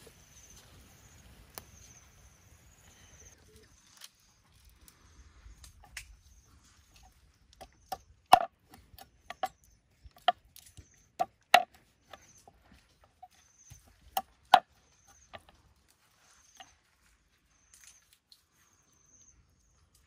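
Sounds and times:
cleaver chopping on wooden board: 7.9s - 9.5s.

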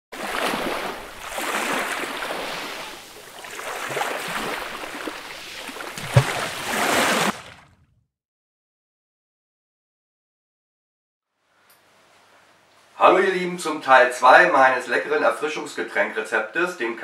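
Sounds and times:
water splashing and sloshing: 0.1s - 8.0s
short low thud: 6.0s - 6.5s.

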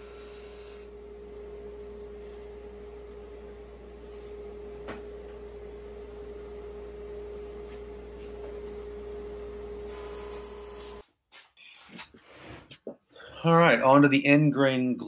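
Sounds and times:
drum sander humming: 0.0s - 11.0s.

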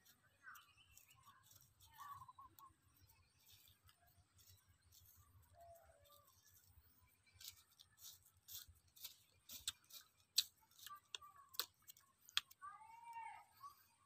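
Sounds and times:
salt crunching between fingertips: 7.2s - 12.6s.

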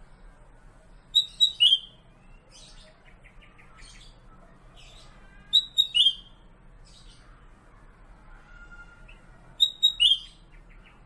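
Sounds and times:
faint bird twittering: 1.0s - 7.5s, 8.5s - 11.0s
bird whistling notes: 1.1s - 2.0s, 5.5s - 6.3s, 9.6s - 10.4s.

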